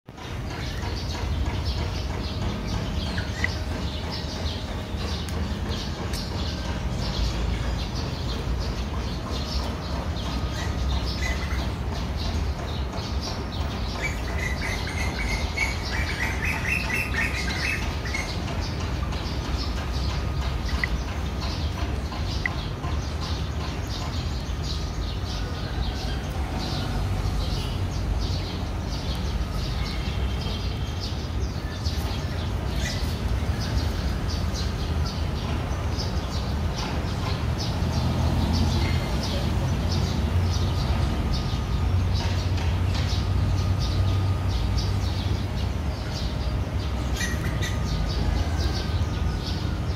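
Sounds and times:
small birds chirping: 0.1s - 49.9s.

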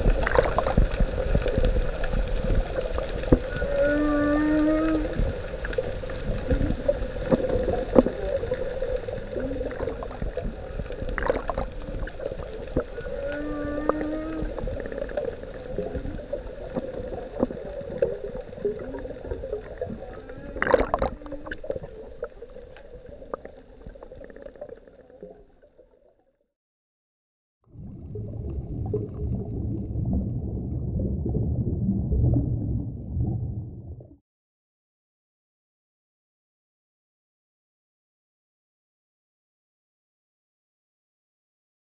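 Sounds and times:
whale calls underwater: 0.0s - 26.0s
low rumble: 27.7s - 34.2s.

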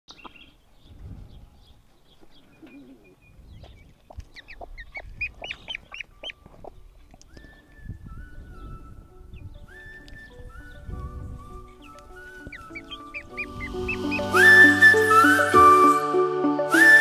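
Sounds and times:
duckling peeping: 0.1s - 0.6s, 2.4s - 15.6s.

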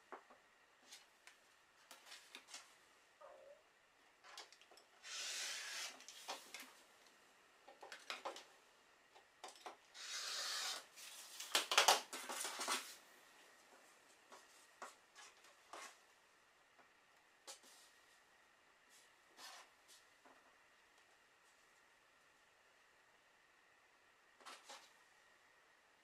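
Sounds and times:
rotary cutter rolling through fabric: 5.0s - 6.3s, 9.9s - 11.2s.

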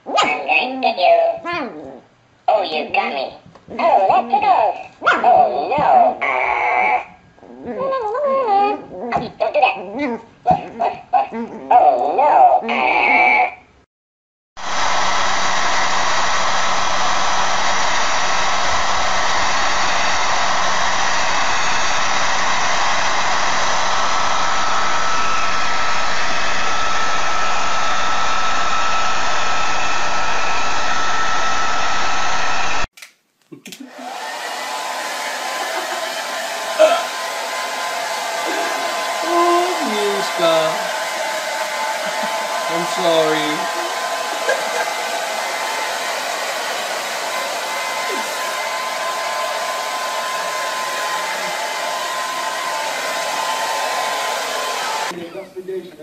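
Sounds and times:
hair dryer blowing: 14.6s - 32.9s, 33.8s - 55.2s.

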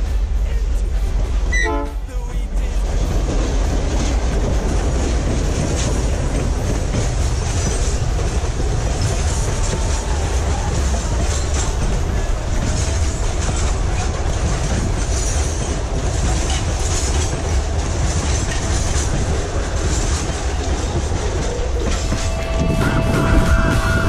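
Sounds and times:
train rumbling past: 0.0s - 24.0s
wheels clattering over rails: 2.7s - 24.0s.

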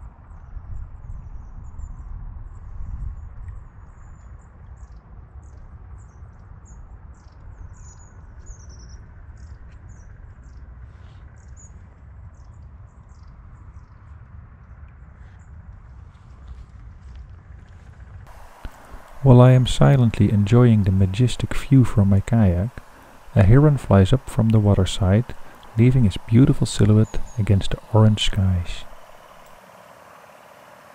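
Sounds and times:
low steady rumble: 11.8s - 30.9s
small birds chirping: 18.3s - 30.9s.

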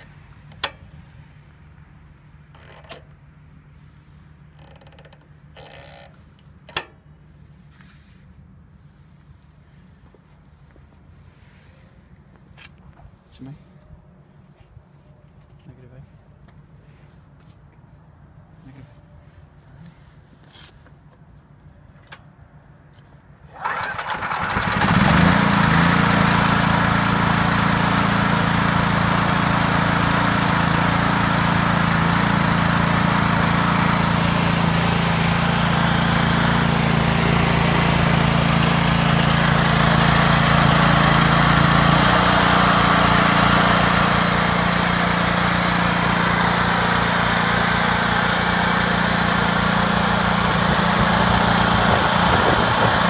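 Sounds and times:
generator engine starting and running: 0.0s - 7.3s, 21.6s - 53.0s.

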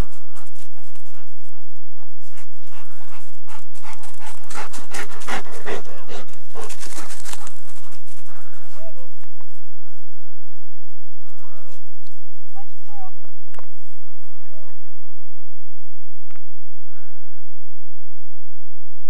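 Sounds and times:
dog panting: 0.0s - 9.6s.

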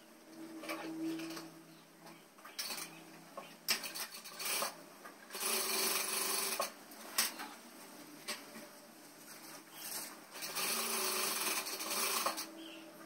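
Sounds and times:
sewing machine stitching: 3.8s - 6.8s, 9.9s - 12.6s.

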